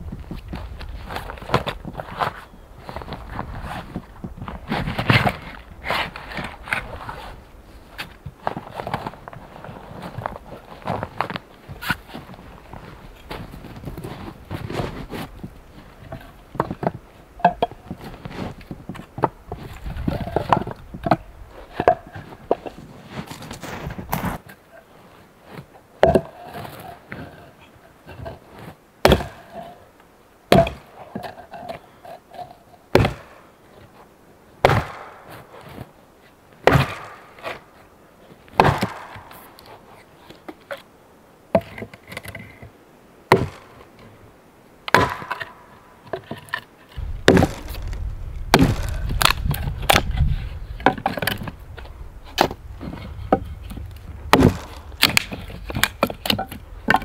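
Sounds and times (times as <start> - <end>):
wooden mallet pounding logs: 16.1 - 18.0, 26.0 - 26.5, 29.0 - 29.6, 30.5 - 31.3, 32.9 - 33.4, 34.6 - 35.2, 36.6 - 37.6, 38.6 - 39.4, 43.3 - 43.7, 44.9 - 57.0
hatchet chopping wood: 29.0 - 29.4, 30.5 - 30.9, 32.9 - 33.3, 34.6 - 35.2, 36.6 - 37.5, 38.6 - 39.4, 43.3 - 43.7, 44.9 - 45.5, 47.3 - 51.5, 53.2 - 57.0
low rumble: 47.0 - 50.8.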